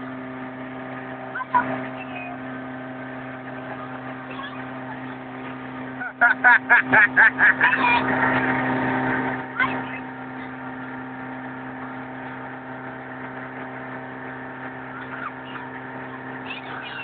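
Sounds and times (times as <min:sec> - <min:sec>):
motorboat engine running: 0:00.0 - 0:17.0
girls shrieking laughter: 0:06.1 - 0:07.8.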